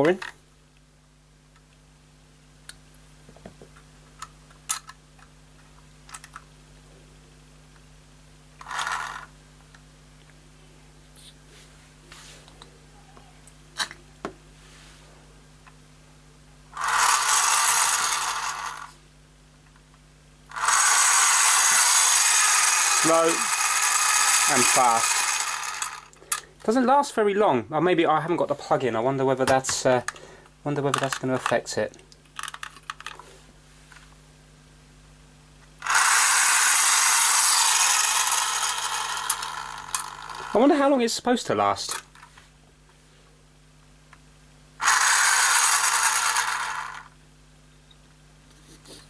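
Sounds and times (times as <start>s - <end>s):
toy car motor whirring: 8.6s - 9.3s, 16.8s - 19.0s, 20.5s - 26.2s, 35.8s - 40.6s, 44.8s - 47.2s.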